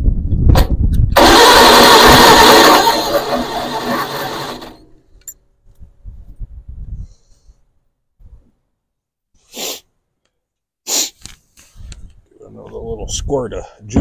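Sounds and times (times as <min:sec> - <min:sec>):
starter cranking engine: 0:01.1 - 0:04.9.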